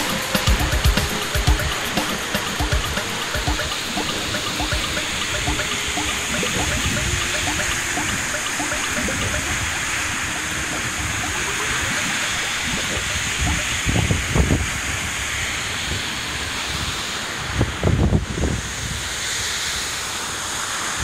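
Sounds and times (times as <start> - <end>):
wind gusts on microphone: 13.4 - 19.6.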